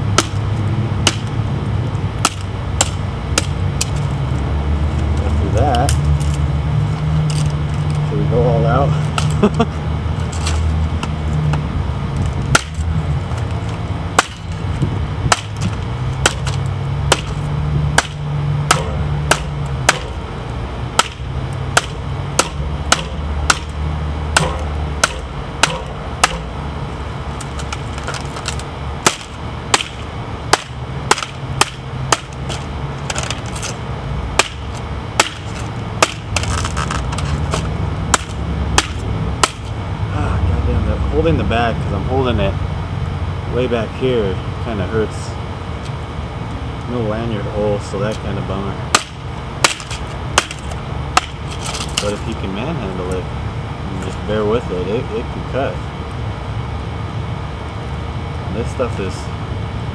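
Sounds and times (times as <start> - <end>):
knife chopping dry stalk: 1.0 - 1.3, 12.5 - 12.9, 15.3 - 20.2, 21.0 - 26.4, 29.0 - 33.7, 34.4 - 39.7.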